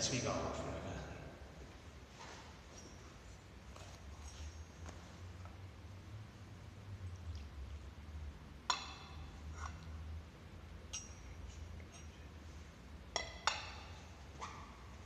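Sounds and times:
faint low hum: 0.0 - 15.0
glass and metal vessels clinking: 10.8 - 12.4, 13.1 - 14.1.

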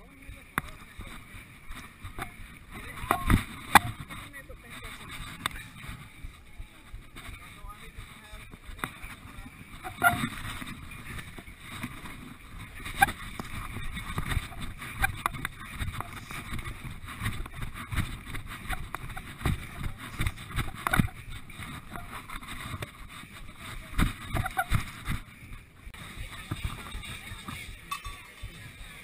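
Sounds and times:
camera handling rumble: 8.5 - 25.3.

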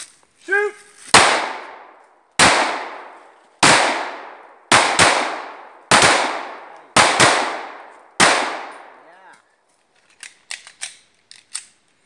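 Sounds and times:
pistol shots echoing: 1.1 - 9.0.

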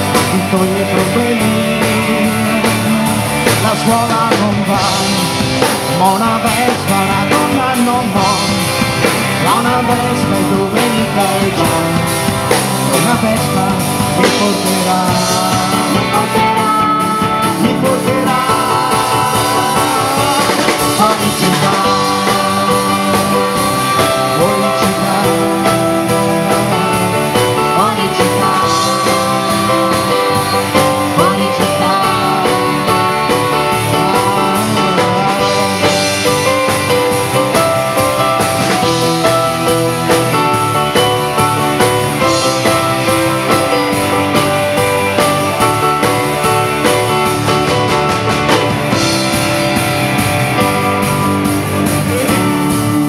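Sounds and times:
male and female vocals: 0.0 - 36.6
pop-rock band playing: 0.0 - 53.0.

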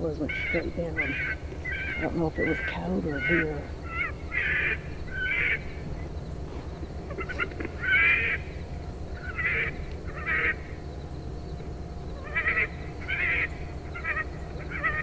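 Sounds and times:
electronic coyote calls: 0.2 - 5.7, 7.1 - 8.5, 9.2 - 10.8, 12.2 - 15.0.

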